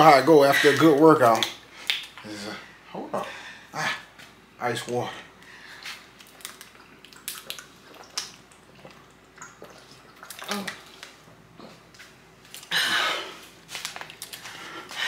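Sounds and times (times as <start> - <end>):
people gulping water: 5.7 - 15.0
plastic bottles crinkling: 13.5 - 15.0.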